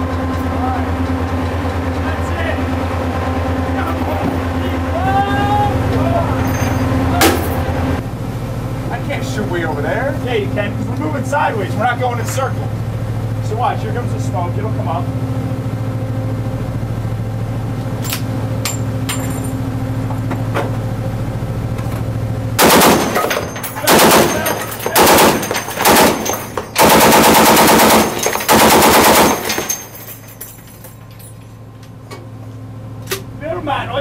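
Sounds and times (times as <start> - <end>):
steady low hum: 0.0 - 34.0
automatic gunfire bursts: 22.6 - 29.9.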